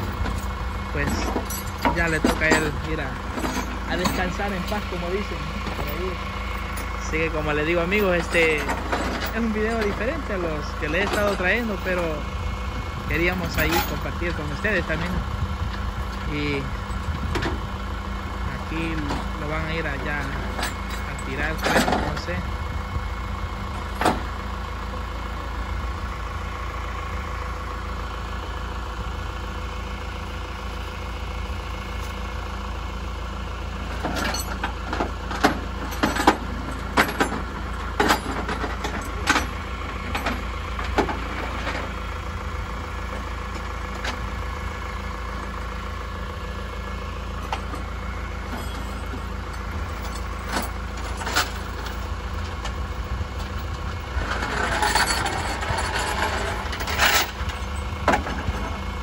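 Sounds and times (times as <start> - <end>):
truck engine idling: 0.0 - 59.0
sharp metal clanks and clicks: 0.2 - 6.9, 7.5 - 12.2, 13.1 - 15.2, 18.8 - 22.4, 34.0 - 42.0, 47.4 - 52.8, 53.4 - 58.8.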